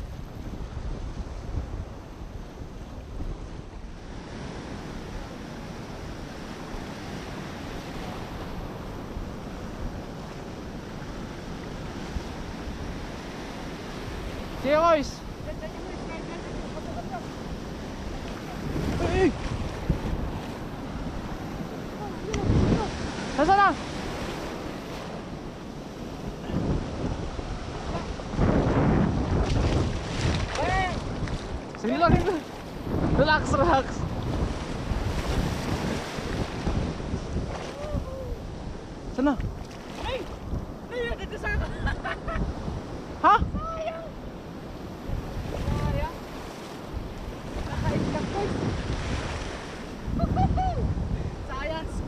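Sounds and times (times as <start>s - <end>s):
wind buffeting microphone: 0.0s - 52.0s
surf breaking over rocks: 11.6s - 41.6s.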